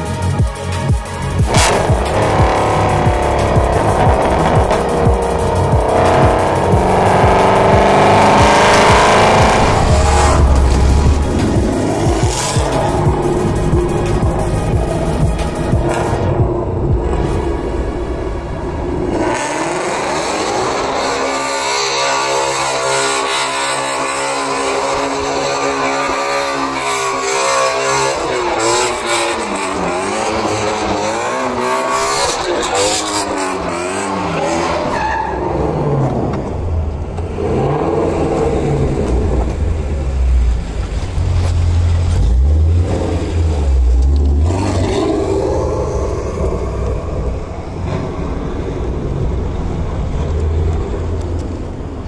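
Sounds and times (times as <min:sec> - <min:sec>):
heavy low rumble: 0:00.0 - 0:21.1, 0:35.4 - 0:52.0
car engine revving: 0:00.0 - 0:52.0
tyres squealing and skidding: 0:19.2 - 0:39.0.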